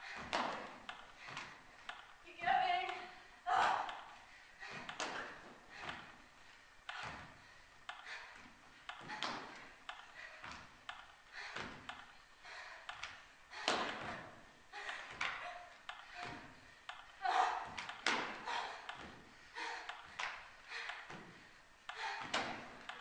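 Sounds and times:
feet thumping on a stage floor: 0:06.9 - 0:12.0.

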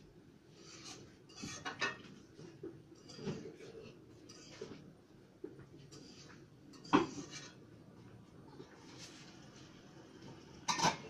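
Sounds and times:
faint room noise: 0:00.0 - 0:11.0
dishes clinking: 0:01.3 - 0:02.1, 0:10.6 - 0:11.0.

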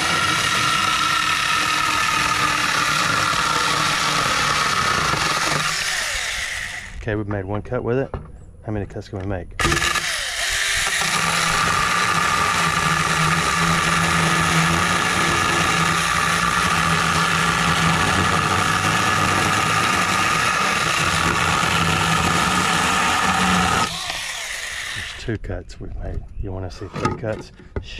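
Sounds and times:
chainsaw cutting wood: 0:00.0 - 0:07.0, 0:09.6 - 0:25.2.

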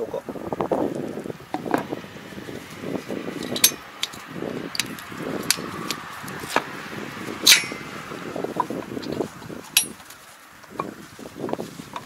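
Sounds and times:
handling noise: 0:01.5 - 0:12.0
metallic clicks and clinks: 0:03.4 - 0:06.0, 0:07.4 - 0:07.9, 0:09.8 - 0:10.0.

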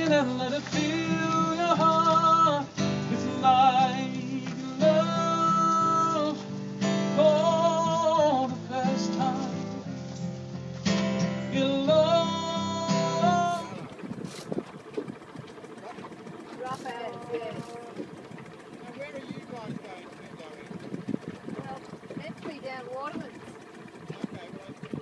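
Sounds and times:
strummed acoustic guitar: 0:00.0 - 0:25.0.

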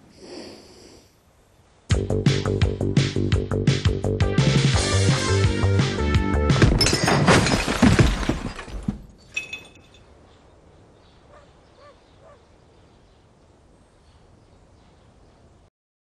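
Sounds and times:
crash into glass door: 0:06.6 - 0:09.0
glass clink: 0:09.2 - 0:10.1
faint bird chirps: 0:09.2 - 0:15.7.

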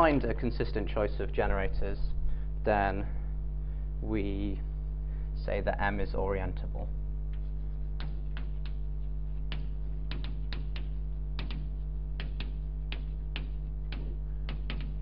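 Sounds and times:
steady electrical hum: 0:00.0 - 0:15.0
chalk tapping on blackboard: 0:07.3 - 0:15.0.

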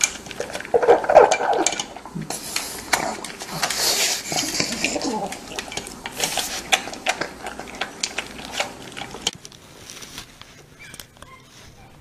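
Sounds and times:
kibble clinking on metal bowl: 0:00.0 - 0:02.0
dog crunching kibble: 0:00.0 - 0:11.3.

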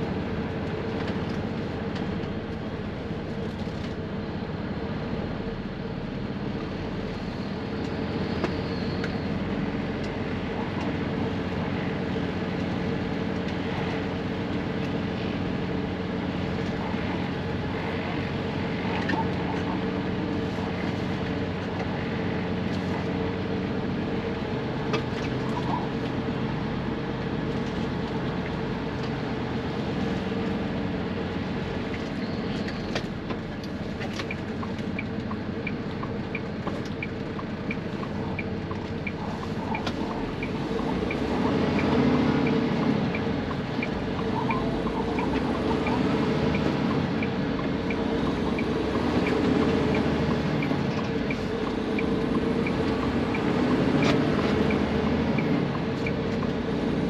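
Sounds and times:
diesel truck engine: 0:00.0 - 0:57.0
turn signal relay ticking: 0:32.7 - 0:57.0.

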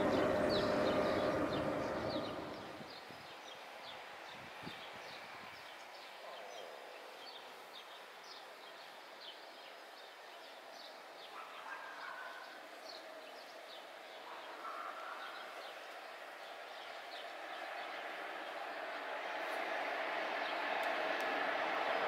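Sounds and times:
low steady hum: 0:00.0 - 0:02.8
birds chirping: 0:00.0 - 0:03.1.

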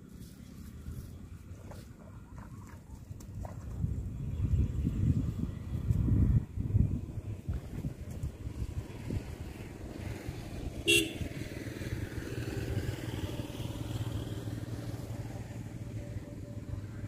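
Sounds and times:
short horn toot: 0:10.9 - 0:11.2.

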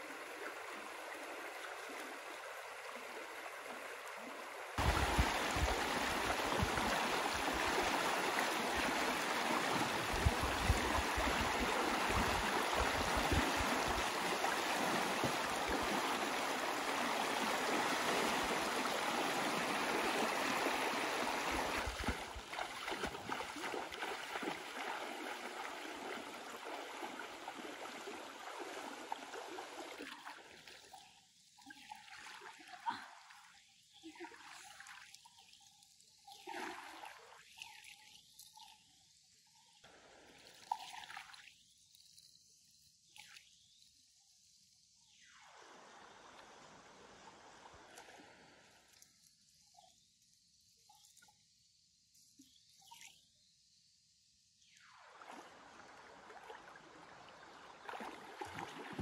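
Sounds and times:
stream rushing over rocks: 0:00.0 - 0:29.8
splashing of wading: 0:00.0 - 0:35.2, 0:36.2 - 0:37.9, 0:54.8 - 0:59.0.

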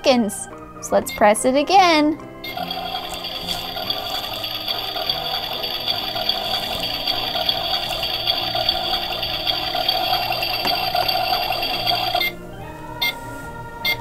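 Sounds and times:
toy oven sizzle sound effect: 0:02.4 - 0:12.3
thin high tone: 0:02.5 - 0:12.4.

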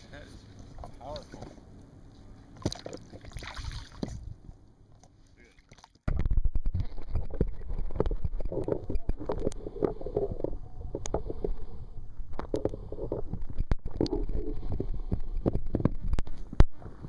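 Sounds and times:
underwater rumble and gurgle: 0:06.1 - 0:17.0.

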